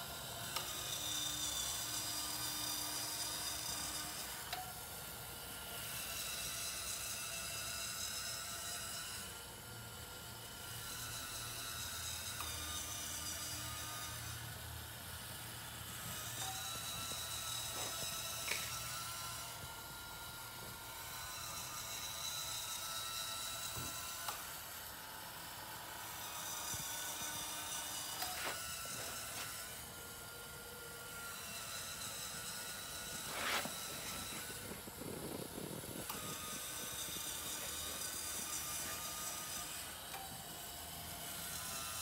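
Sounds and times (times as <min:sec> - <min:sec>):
electric motors whining: 0:00.0 - 0:42.0.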